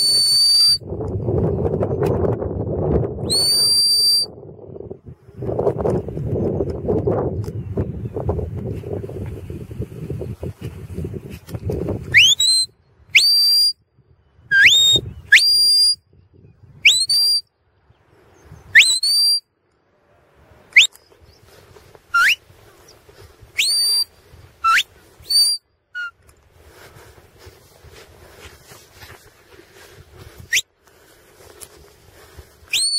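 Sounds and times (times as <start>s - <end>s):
person whistling commands: 0.0s - 0.8s, 3.2s - 4.3s, 12.1s - 13.8s, 14.5s - 16.0s, 16.9s - 17.4s, 18.8s - 19.4s, 22.2s - 22.4s, 23.6s - 26.1s.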